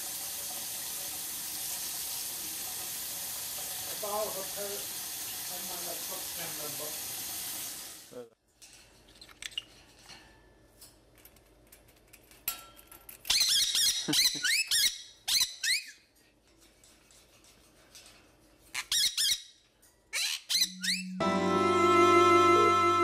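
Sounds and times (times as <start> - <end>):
parrot squawking: 13.3 - 16.0, 18.7 - 19.5, 20.1 - 21.2.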